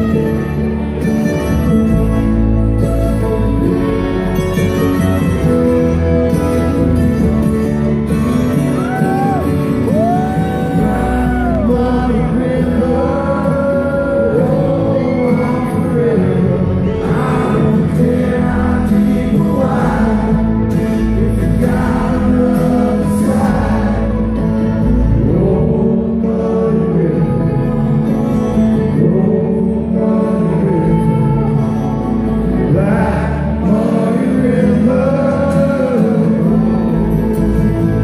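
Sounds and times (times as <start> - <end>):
bluegrass band playing: 0.0 - 38.0
person singing: 8.7 - 38.0.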